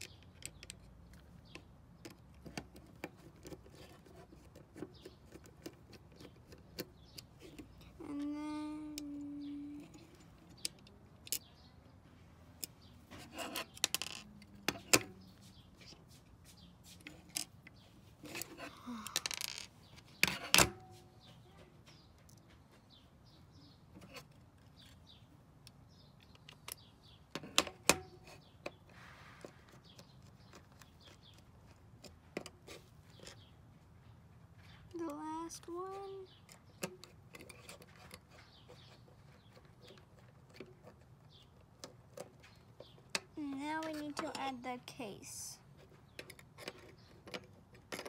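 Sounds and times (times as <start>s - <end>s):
small metal parts clicking and scraping: 9.0s - 11.6s, 12.6s - 15.1s, 17.1s - 20.7s, 36.4s - 44.5s, 45.8s - 48.0s.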